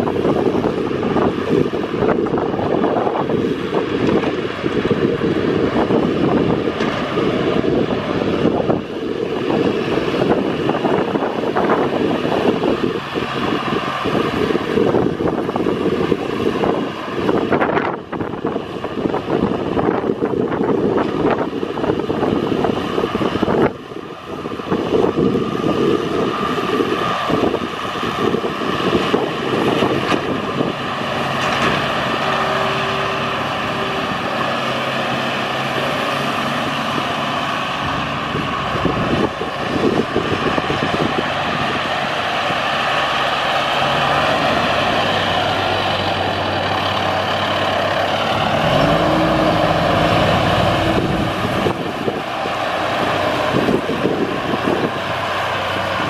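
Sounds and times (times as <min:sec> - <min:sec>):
tractor diesel engine running: 0:00.0 - 0:56.0
snowblower throwing snow: 0:24.3 - 0:56.0.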